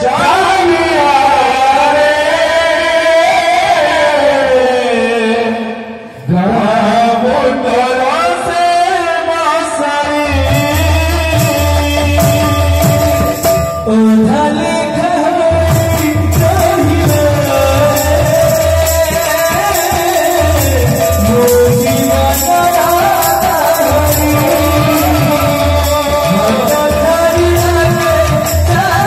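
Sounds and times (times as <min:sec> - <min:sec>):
man singing devotional melody: 0:00.0 - 0:29.0
steady drum beat: 0:10.3 - 0:14.5, 0:15.4 - 0:29.0.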